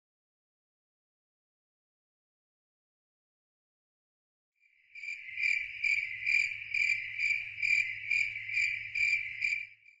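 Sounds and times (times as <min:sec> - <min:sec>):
cricket chirping: 0:04.6 - 0:10.0.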